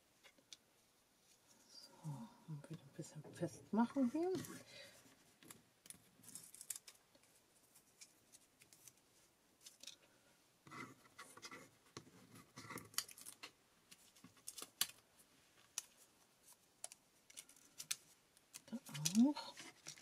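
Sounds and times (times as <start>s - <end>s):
light clicks and paper rustles: 4.0s - 20.0s.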